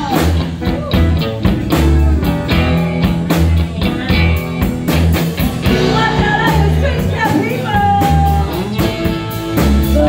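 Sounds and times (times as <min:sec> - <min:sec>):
cigar box guitar: 0:00.0 - 0:10.0
drum kit steady beat: 0:00.0 - 0:10.0
electric bass: 0:00.0 - 0:10.0
electric lead guitar: 0:00.0 - 0:10.0.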